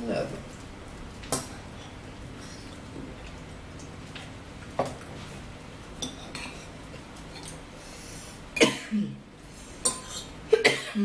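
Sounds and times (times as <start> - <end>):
spoons clinking against bowls: 6.0 - 6.7, 9.8 - 10.3
person coughing: 8.6 - 9.2, 10.5 - 11.0.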